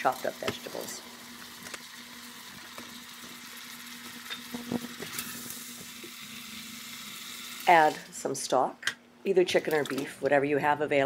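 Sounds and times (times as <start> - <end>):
faint sizzle: 0.0 - 8.6.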